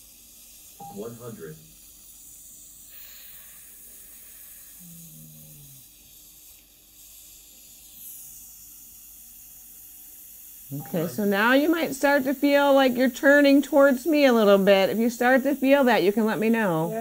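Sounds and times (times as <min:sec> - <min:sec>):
faint air hiss: 0:00.0 - 0:17.0.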